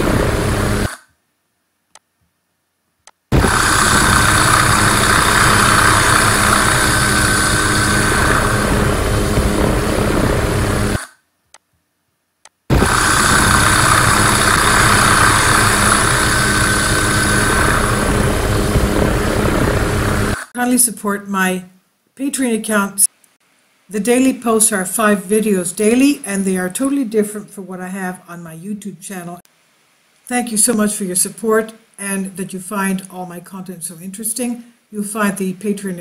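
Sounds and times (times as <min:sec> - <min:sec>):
helicopter engine and rotor: 0:00.0 - 0:00.9, 0:03.3 - 0:11.0, 0:12.7 - 0:20.5.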